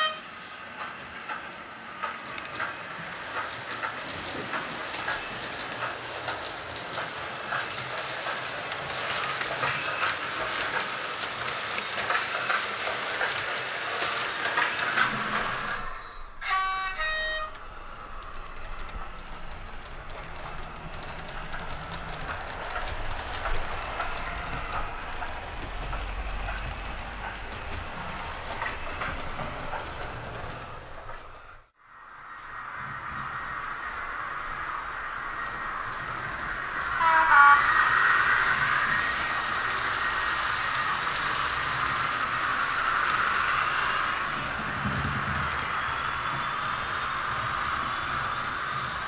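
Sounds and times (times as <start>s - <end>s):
model train horn tones: 0.0s - 0.4s, 15.8s - 18.1s, 37.0s - 38.1s
model train wheels clicking on rails: 0.1s - 31.7s, 32.8s - 49.0s.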